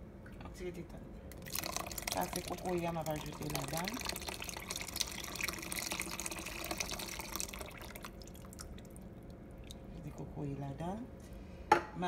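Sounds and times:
liquid pouring into a pot: 0:01.3 - 0:10.3.

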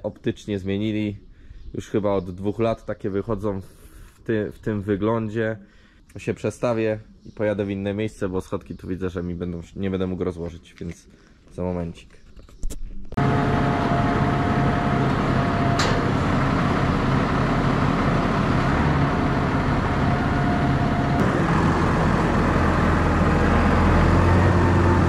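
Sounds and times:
tractor diesel engine running: 0:13.2 - 0:25.0.

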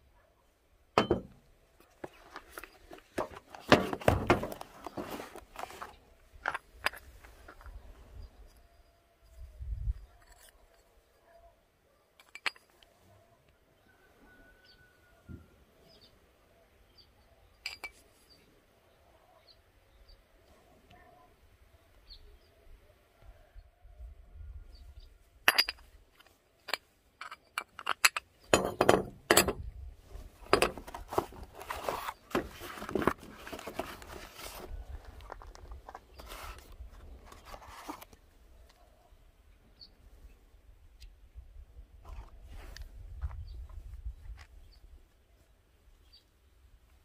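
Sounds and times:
cardboard box rustling scrape: 0:03.2 - 0:06.0, 0:30.8 - 0:34.8, 0:35.5 - 0:38.1
metal parts clinking on workbench: 0:12.2 - 0:12.8, 0:17.6 - 0:18.0, 0:25.5 - 0:29.6.

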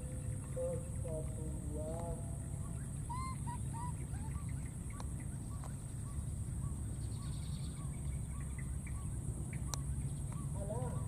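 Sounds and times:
baby monkey squeaky calls: 0:03.1 - 0:04.6.

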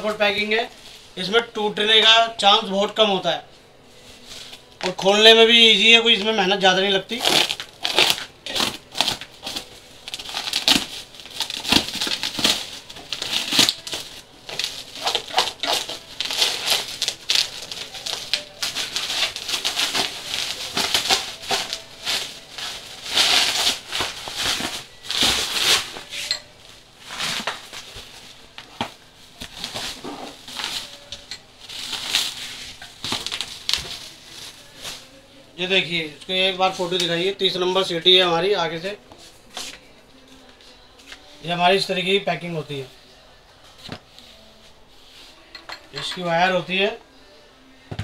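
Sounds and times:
plastic sheeting crinkling: 0:07.1 - 0:35.2.

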